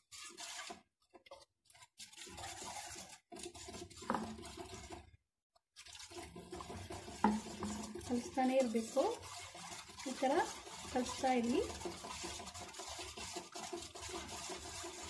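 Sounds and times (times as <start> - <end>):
ladle scraping metal pan: 0.0 - 0.9, 1.7 - 5.1, 5.8 - 15.0.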